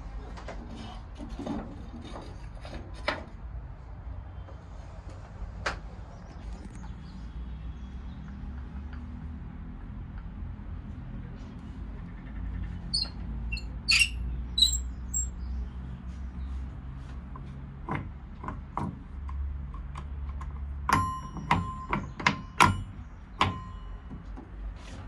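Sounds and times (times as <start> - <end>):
high metal squeaks: 12.7 - 15.4
sharp metallic clicks and taps: 17.4 - 24.2.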